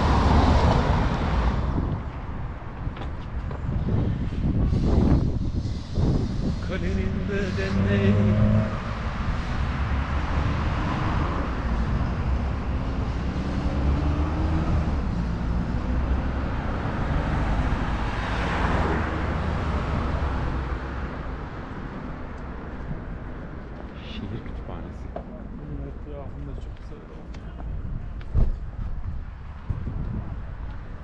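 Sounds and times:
car passing: 0.0s - 2.0s, 3.8s - 25.6s
vehicle engines running: 0.0s - 18.0s.

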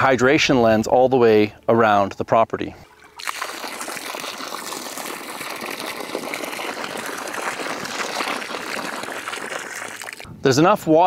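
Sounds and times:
water gushing from hydrant: 2.9s - 10.3s
water jet splashing on gravel: 2.9s - 10.3s.

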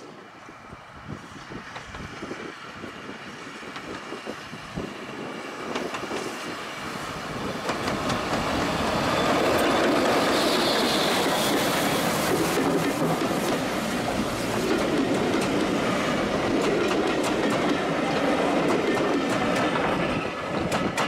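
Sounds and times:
steam train approaching: 0.0s - 21.0s
wheels clicking over rail joints: 7.4s - 21.0s.

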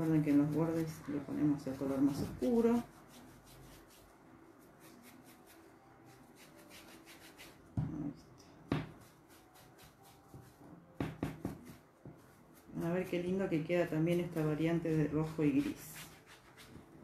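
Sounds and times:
brush rubbing on fabric: 0.0s - 7.6s, 11.6s - 13.2s, 14.0s - 17.0s.

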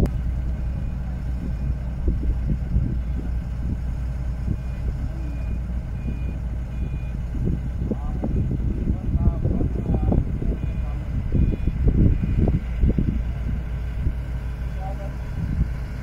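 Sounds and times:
diesel engine running: 0.0s - 16.0s
short electronic beeps: 4.5s - 7.2s, 10.5s - 12.5s.

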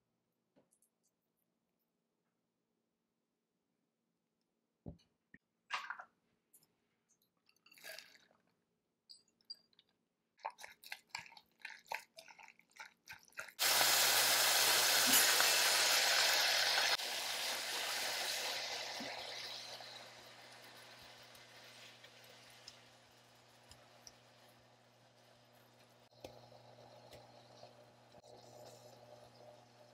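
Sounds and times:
food sizzling in frying pan: 13.6s - 28.0s.

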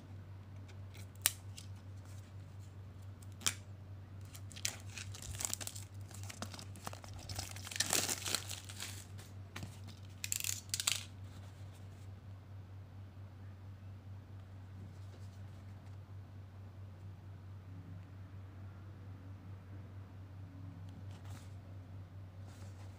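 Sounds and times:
plastic wrap crackling: 4.2s - 11.1s.

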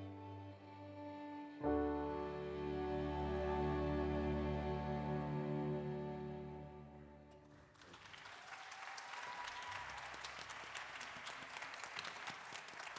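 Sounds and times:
keyboard and string chord: 0.0s - 7.4s
audience applause: 7.5s - 12.9s.

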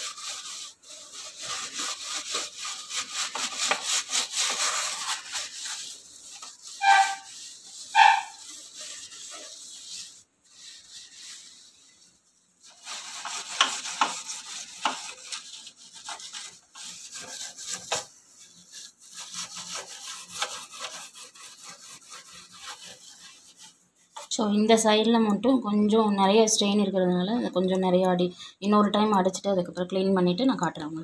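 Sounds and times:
steel wool scraping stove: 0.0s - 24.4s.

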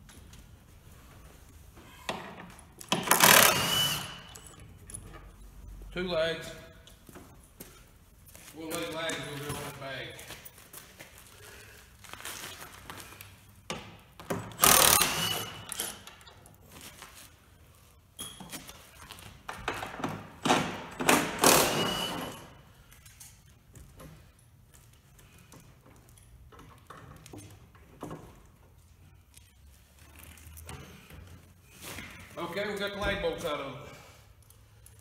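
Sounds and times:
cordless impact wrench running: 3.0s - 4.4s, 14.5s - 16.0s.

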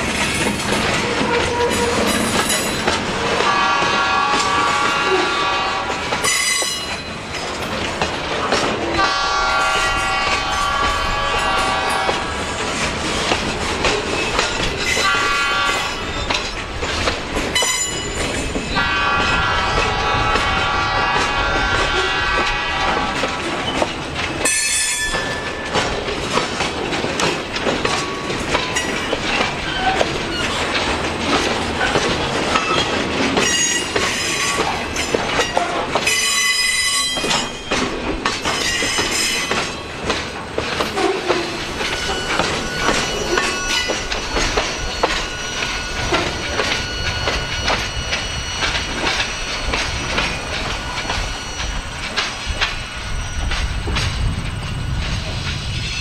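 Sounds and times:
train wheels clattering over rail joints: 0.0s - 56.0s
metallic wheel squeal: 40.9s - 54.2s.

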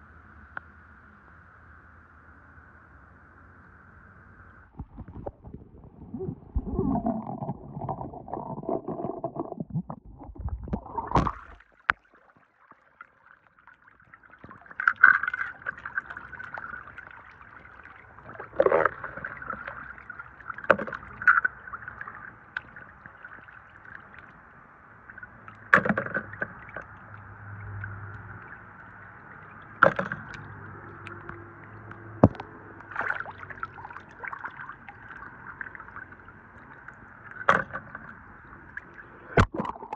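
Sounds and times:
water splashing in plastic basin: 6.4s - 12.1s, 29.4s - 36.1s.

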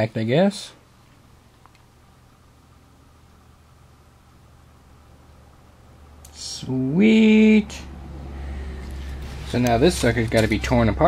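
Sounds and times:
low hum: 1.9s - 11.0s.

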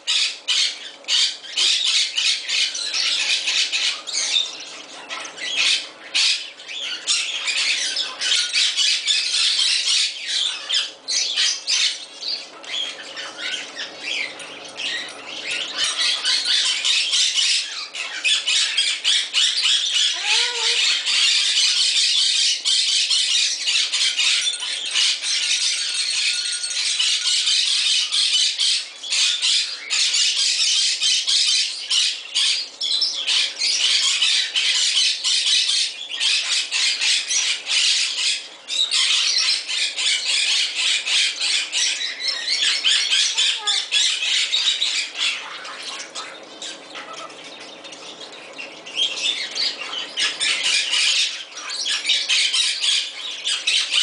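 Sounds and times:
cockatoo squawking: 15.4s - 22.1s, 33.3s - 47.4s.

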